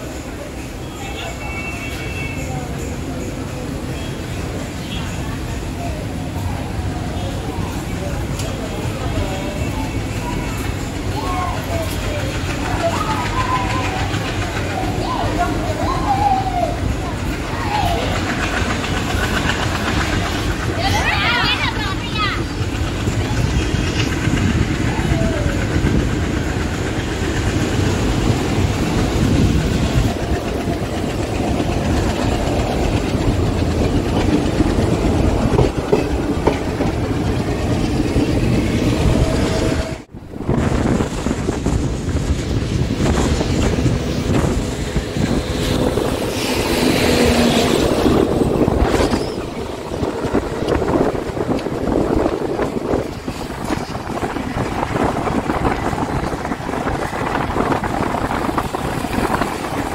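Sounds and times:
train rumbling: 0.0 - 59.9
wheels clattering over track: 1.6 - 59.9.

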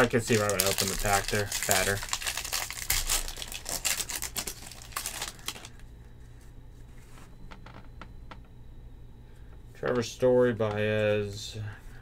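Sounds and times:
foil wrapper tearing and crinkling: 0.0 - 5.8.

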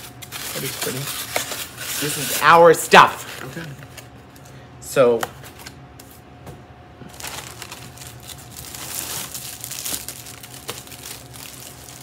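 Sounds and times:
packaging crinkling and rustling: 0.0 - 2.5, 7.1 - 12.0.

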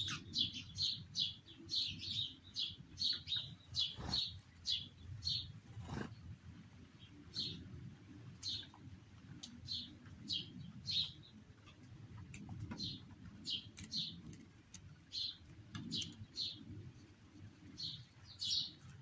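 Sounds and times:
small bird chirping: 0.0 - 6.3, 8.4 - 8.8, 9.4 - 11.9, 12.7 - 19.0.

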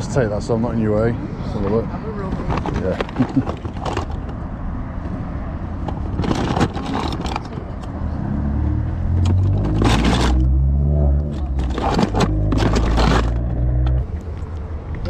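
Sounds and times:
plastic toys clattering: 2.3 - 4.4, 5.8 - 7.9, 9.2 - 10.6, 11.2 - 13.6
vehicle engine running: 5.8 - 14.5.

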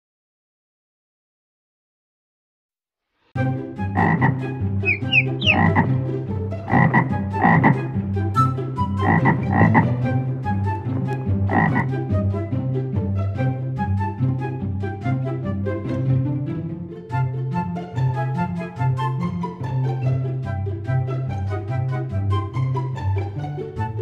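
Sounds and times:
frog croaks: 4.0 - 5.9, 6.7 - 7.8, 9.0 - 9.8, 11.5 - 11.9
quick rising chirps: 4.8 - 5.9.

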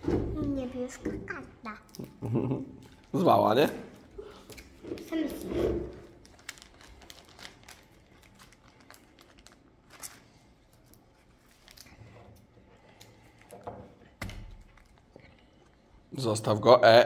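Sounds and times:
plastic pages crinkling: 6.0 - 12.1, 14.5 - 15.2.

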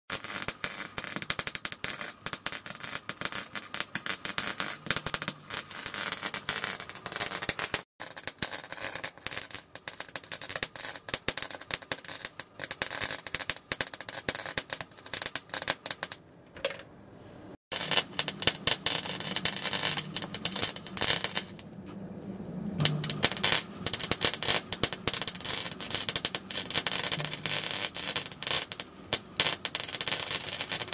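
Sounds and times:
welding arc crackling: 0.1 - 16.2, 17.7 - 21.6, 22.8 - 30.9.

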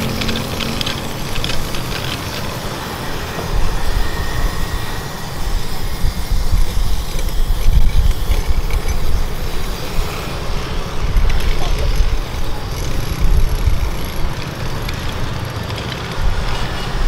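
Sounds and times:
passing traffic rumble: 0.0 - 17.0.

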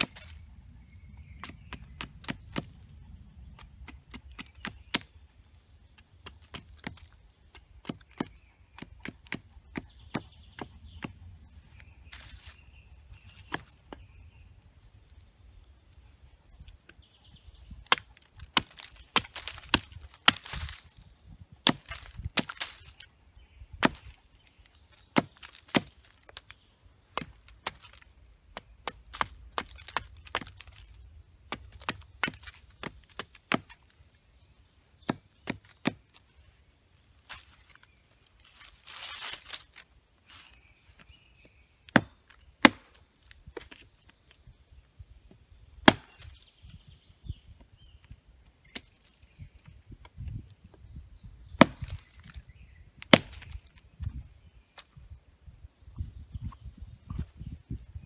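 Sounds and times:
knife chopping into wood: 6.2 - 11.2, 13.3 - 14.0, 17.8 - 20.8, 21.6 - 22.8, 23.8 - 24.2, 25.1 - 26.2, 31.5 - 33.8, 35.0 - 36.2, 41.9 - 43.0, 45.8 - 46.4, 51.6 - 52.4, 53.0 - 53.8.

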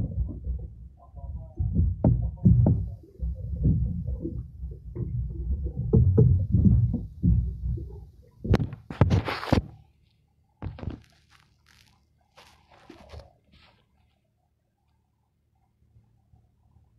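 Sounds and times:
muffled thumps on microphone: 0.0 - 9.8, 10.6 - 11.1.

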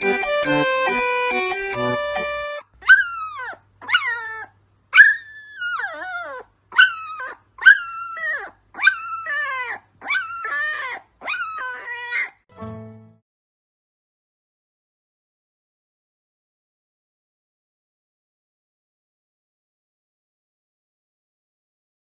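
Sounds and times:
puppy howling: 2.8 - 12.4.

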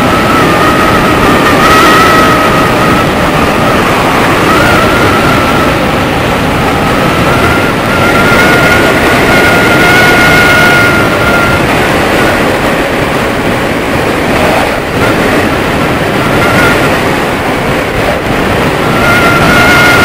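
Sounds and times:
thin steady whistle: 0.0 - 11.7, 16.1 - 17.0, 18.0 - 20.0
wind rushing on microphone: 0.0 - 20.0.

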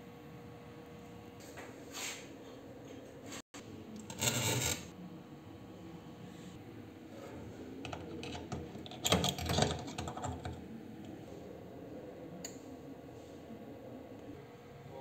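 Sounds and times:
clamps clicking and rattling: 7.9 - 10.6.

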